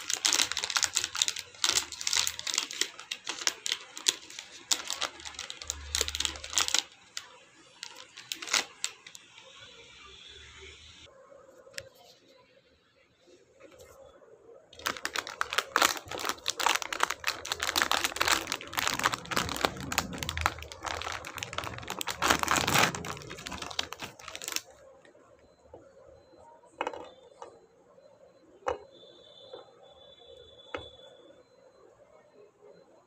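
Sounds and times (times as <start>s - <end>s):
plastic wrapper crinkling: 0.0s - 9.5s, 14.8s - 24.8s.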